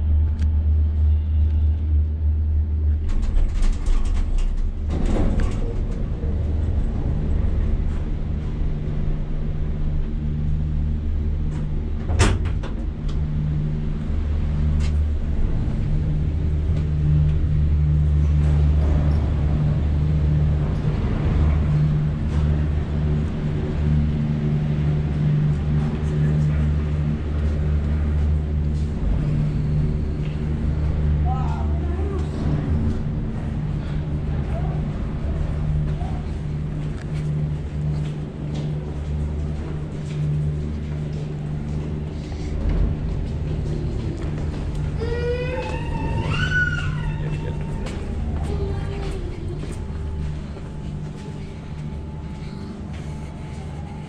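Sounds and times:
cable car cabin rumble and hum: 0:00.0 - 0:54.0.

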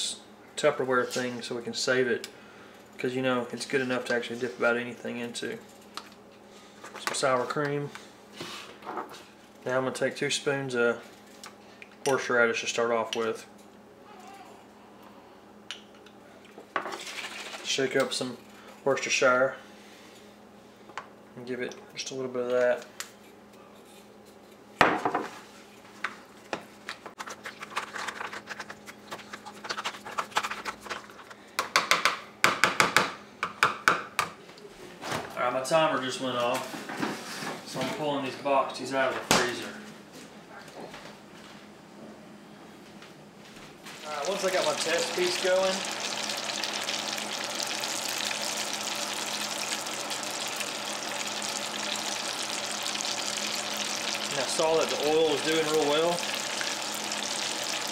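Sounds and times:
oil sizzling and crackling: 0:43.9 - 0:57.9.

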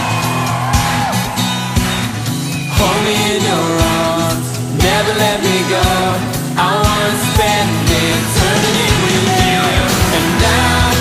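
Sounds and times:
guitar: 0:00.0 - 0:11.0
person singing: 0:02.7 - 0:11.0
low beat: 0:05.9 - 0:11.0.

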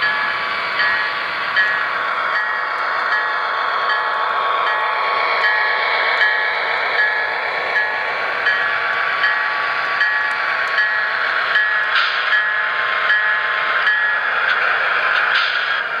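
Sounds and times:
model train running noise: 0:00.0 - 0:16.0.

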